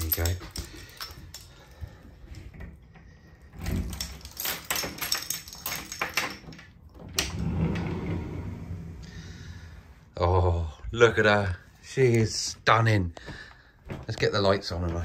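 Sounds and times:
keys rattling in a door lock: 0:00.0 - 0:07.5
glass sliding door sliding open: 0:07.0 - 0:10.2.

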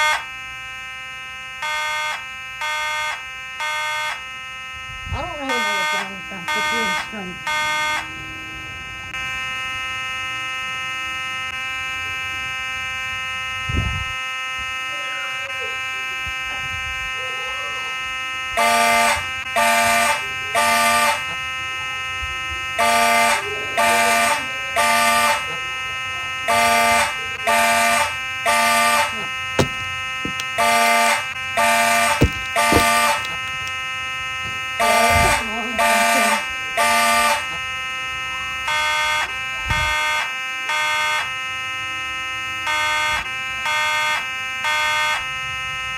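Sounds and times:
fire alarm horn blasts: 0:00.0 - 0:45.9
steady electronic alarm tone: 0:00.0 - 0:45.9
thump: 0:29.6 - 0:30.4, 0:32.2 - 0:33.1.

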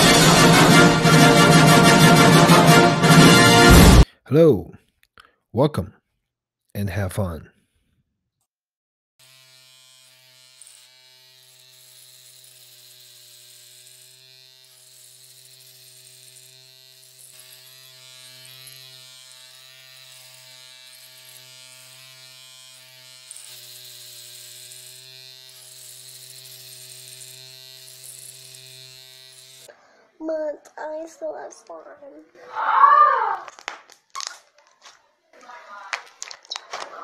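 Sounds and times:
electric hair clippers buzzing: 0:00.0 - 0:04.0, 0:09.2 - 0:29.7, 0:35.9 - 0:36.6.

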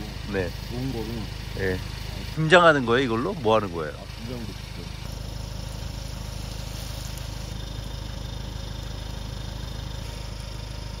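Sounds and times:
hose nozzle spraying water: 0:00.0 - 0:08.2
small engine running: 0:00.0 - 0:11.0.

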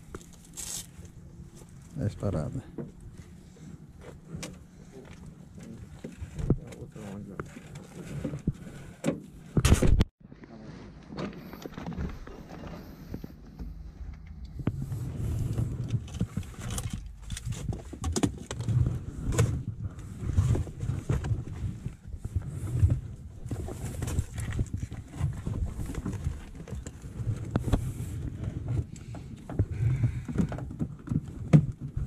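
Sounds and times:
low handling rumble: 0:11.4 - 0:30.4.

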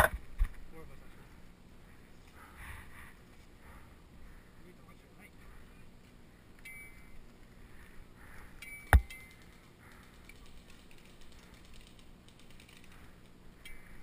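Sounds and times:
toy guns clicking and rattling: 0:08.9 - 0:14.0.

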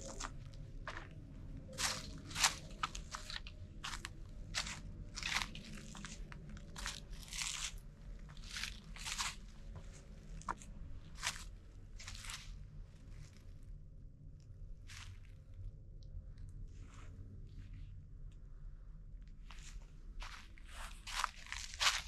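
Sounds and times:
footsteps crunching on trail: 0:00.0 - 0:01.1, 0:01.7 - 0:12.5, 0:19.5 - 0:22.0.

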